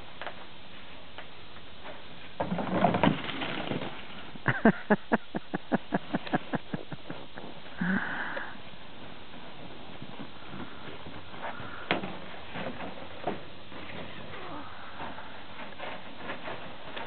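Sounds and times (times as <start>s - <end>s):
person laughing hard: 4.4s - 8.3s.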